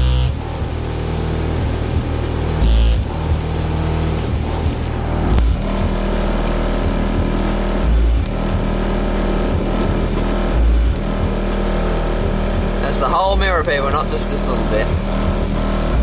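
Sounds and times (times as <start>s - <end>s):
bass hits from car subwoofers: 0.0s - 16.0s
low bass drone: 0.0s - 16.0s.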